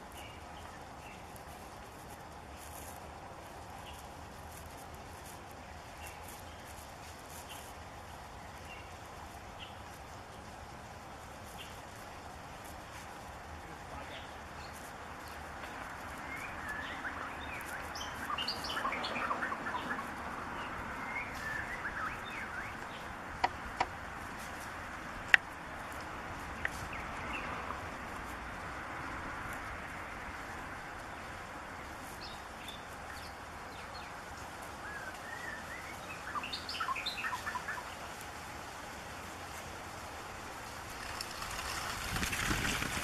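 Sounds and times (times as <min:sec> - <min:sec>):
bird singing whistled notes: 0:16.2 - 0:20.1, 0:21.0 - 0:23.1, 0:34.8 - 0:37.9.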